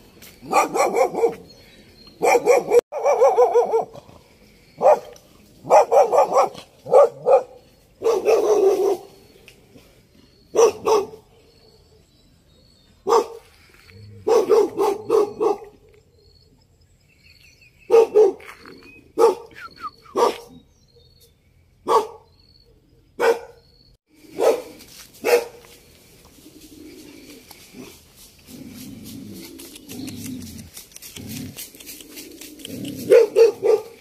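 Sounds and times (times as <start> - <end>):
dog barking: 0.5 - 1.5, 2.2 - 4.0, 4.8 - 9.1, 10.5 - 11.2, 13.0 - 13.4, 14.2 - 15.8, 17.9 - 18.5, 19.2 - 19.5, 20.1 - 20.5, 21.8 - 22.3, 23.2 - 23.6, 24.3 - 25.6, 33.0 - 34.0.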